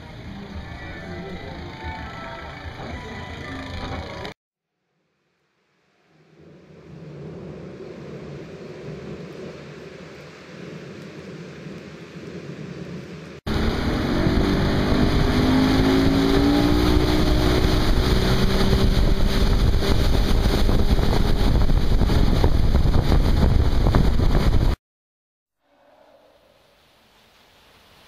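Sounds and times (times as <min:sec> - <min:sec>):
boat engine running: 0:00.0 - 0:04.4, 0:13.5 - 0:24.8
wind: 0:00.0 - 0:24.8, 0:25.6 - 0:28.0
water rushing: 0:13.2 - 0:24.8.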